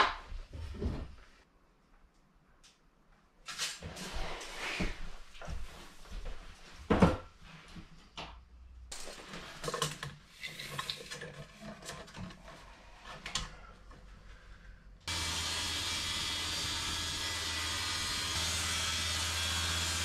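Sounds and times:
circular saw cutting board: 15.1 - 20.0.

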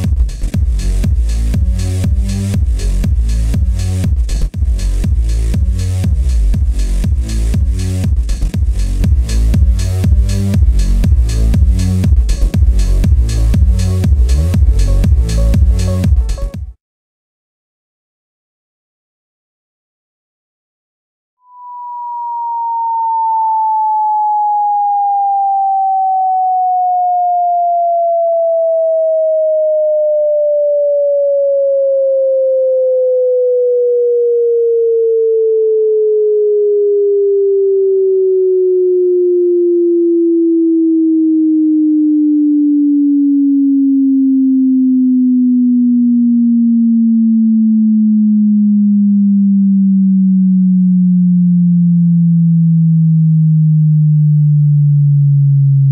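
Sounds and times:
sine tone sweeping down: 21.4 - 55.9.

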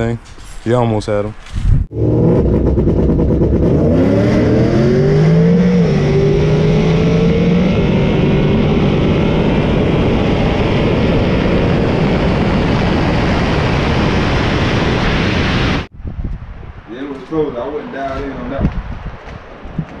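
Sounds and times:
wind noise: 0.0 - 20.0
car engine revving at full throttle: 1.9 - 15.9.

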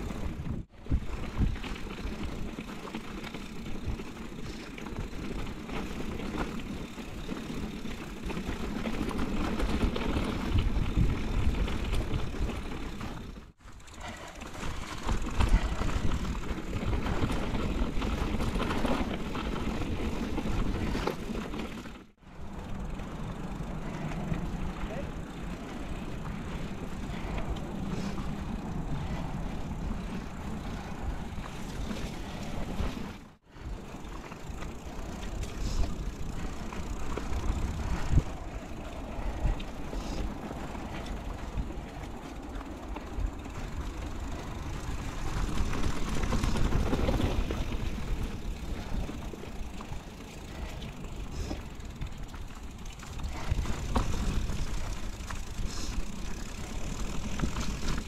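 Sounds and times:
wind rumble on microphone: 0.0 - 2.7, 8.3 - 21.1, 25.6 - 52.4
bike knocking and rattling: 0.0 - 58.0
bike tyres on dirt trail: 0.0 - 58.0.

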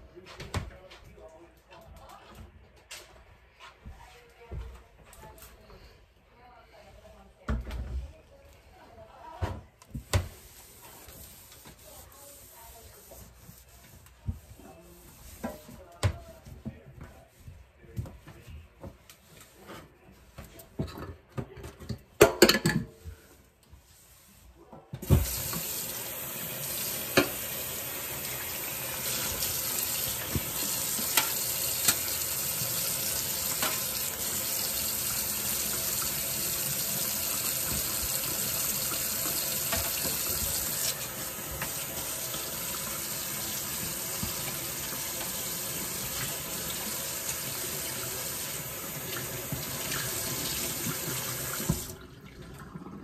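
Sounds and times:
dishes clinking: 21.9 - 23.0
tap water running into sink: 25.0 - 53.0.

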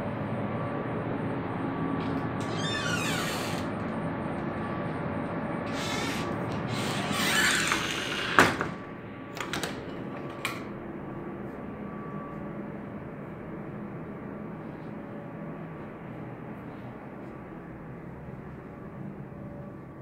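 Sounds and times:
steady hum: 0.0 - 9.3
door banging shut: 2.4 - 3.8, 5.7 - 8.8
sliding door rattling: 2.4 - 3.9, 5.7 - 8.8.

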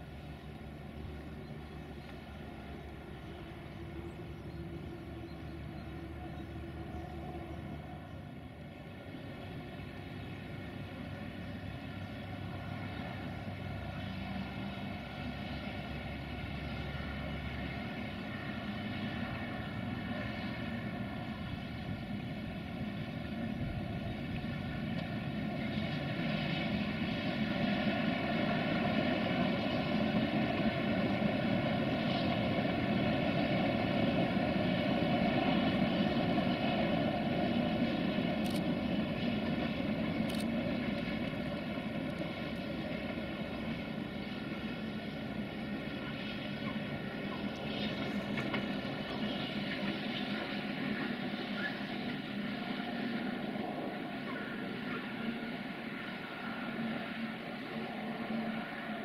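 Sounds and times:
diesel locomotive rumble with whine: 0.0 - 59.0.

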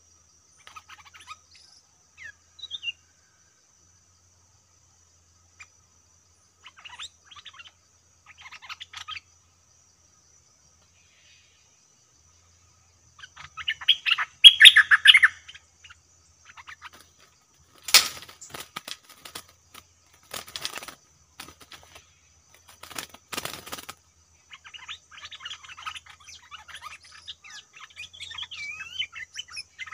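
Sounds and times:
birds chirping: 5.4 - 29.9
bird wings fluttering: 16.8 - 24.0.

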